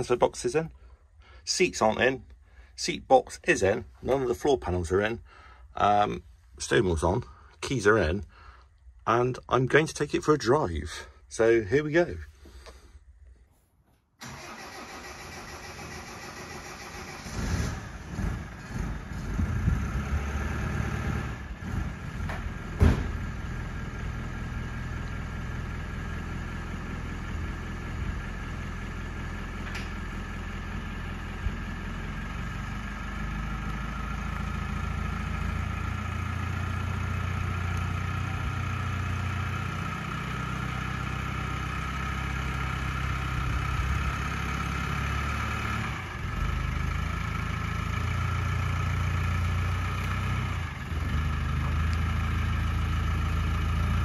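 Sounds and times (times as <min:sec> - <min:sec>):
engine cranking and starting: 0:14.2 - 0:23.4
engine running steadily: 0:15.9 - 0:54.0
sharp clunk: 0:22.3 - 0:23.2.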